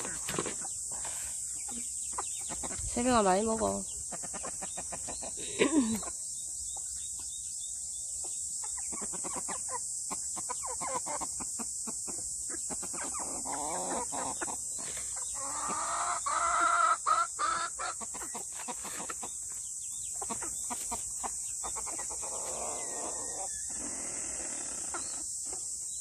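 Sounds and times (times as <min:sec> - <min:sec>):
beaks pecking ground: 0:00.0 - 0:25.9
chickens clucking: 0:00.0 - 0:26.0
chicken drawn-out call: 0:12.9 - 0:14.6, 0:15.3 - 0:19.2, 0:21.8 - 0:25.2.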